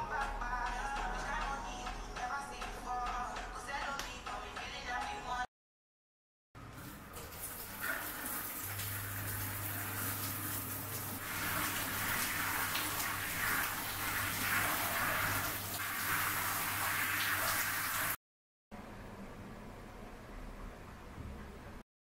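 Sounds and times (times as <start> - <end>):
shower water spraying: 6.7 - 18.2.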